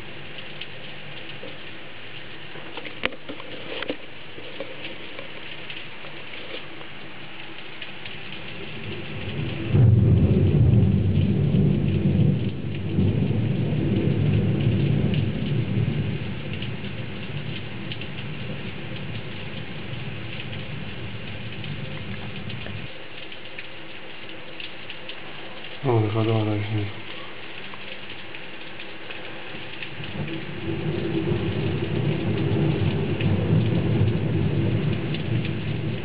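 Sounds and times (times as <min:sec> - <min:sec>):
heavy rain: 0:00.0 - 0:36.0
rolling thunder: 0:08.5 - 0:22.9, 0:29.9 - 0:36.0.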